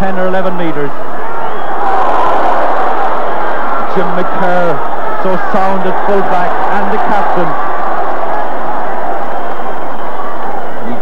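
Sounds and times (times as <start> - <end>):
murmur of stadium crowd: 0.0 - 11.0.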